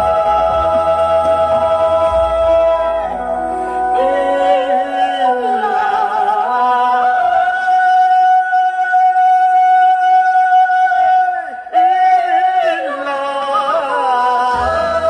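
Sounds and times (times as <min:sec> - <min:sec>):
song with singing and instruments: 0:00.0 - 0:15.0.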